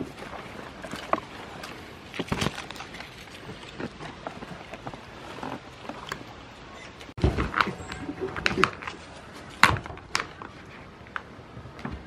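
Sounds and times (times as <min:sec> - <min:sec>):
twigs rustling and snapping: 0:00.7 - 0:06.4.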